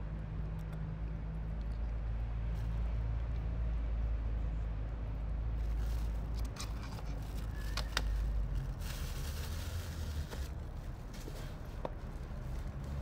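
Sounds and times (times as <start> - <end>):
cats crunching dry kibble: 5.6 - 13.0.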